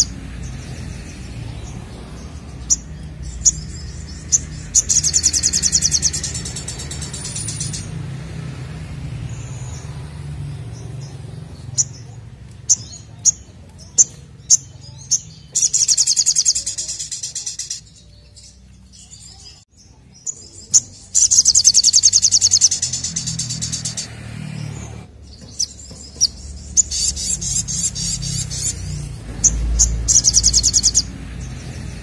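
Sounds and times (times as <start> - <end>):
bird chips: 0.0 - 8.2, 9.2 - 32.0
high-pitched bird trills: 2.3 - 8.0, 11.7 - 19.6, 20.2 - 24.2, 25.2 - 31.2.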